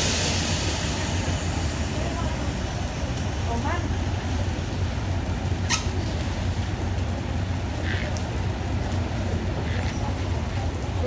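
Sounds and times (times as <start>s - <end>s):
diesel train idling: 0.0s - 5.7s.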